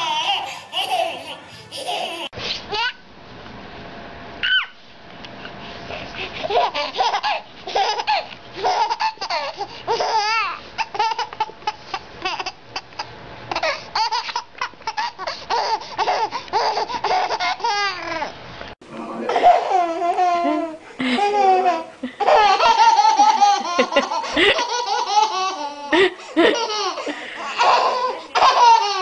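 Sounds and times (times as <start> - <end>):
baby laughing: 0.0 - 3.0, 6.4 - 18.3, 19.2 - 29.0
baby squealing: 4.4 - 4.8, 27.5 - 29.0.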